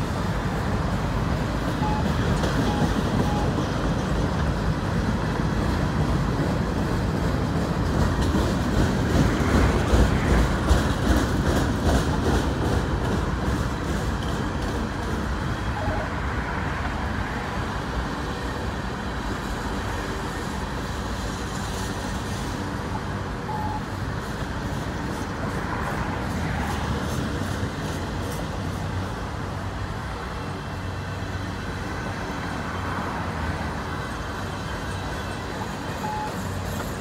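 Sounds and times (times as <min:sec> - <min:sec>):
train wheels rumbling on rails: 0:00.0 - 0:37.0
wheels clacking over rail joints: 0:01.6 - 0:16.0.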